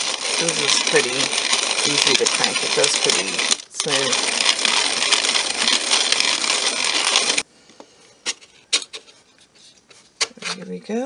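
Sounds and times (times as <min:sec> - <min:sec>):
manual coffee grinder grinding: 0:00.0 - 0:07.4.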